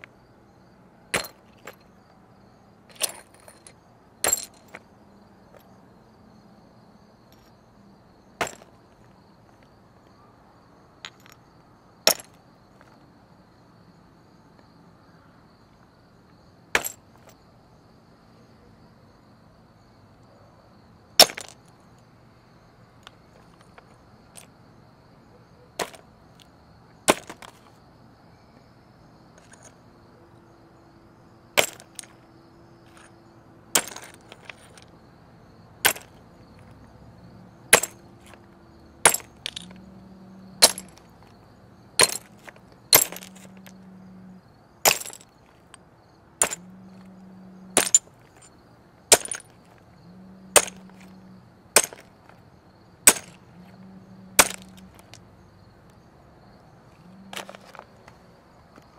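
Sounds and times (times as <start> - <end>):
ceramic teacup smashing: 31.6 - 32.0, 35.9 - 36.1, 37.7 - 38.0, 39.1 - 39.7, 40.6 - 41.0, 42.0 - 43.7, 44.8 - 45.3, 46.4 - 46.6, 47.8 - 48.5, 49.1 - 49.6, 50.6 - 51.1, 51.8 - 52.1, 53.1 - 53.4, 54.4 - 55.0.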